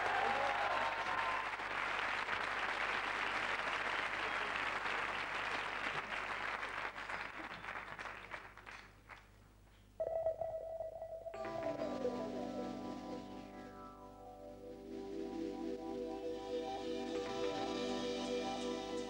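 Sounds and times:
studio audience applauding: 0.0 - 9.4.

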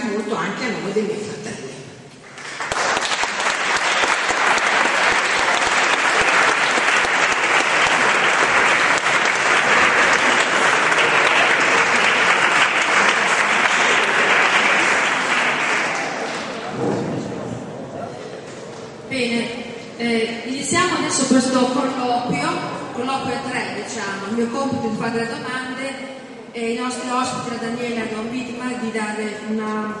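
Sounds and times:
audience applauding: 2.2 - 16.7.

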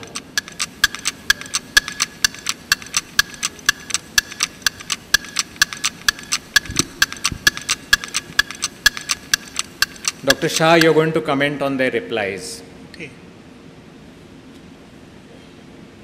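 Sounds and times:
clock ticking: 0.0 - 11.1.

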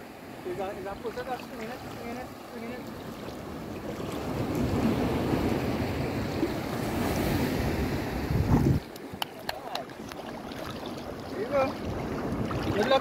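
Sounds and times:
shallow surf breaking: 0.0 - 13.0
wind buffeting microphone: 3.0 - 13.0.

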